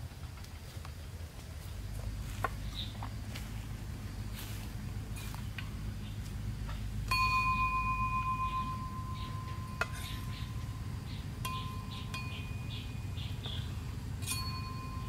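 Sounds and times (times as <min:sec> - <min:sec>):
metal bowl ringing: 0:07.0 - 0:15.0.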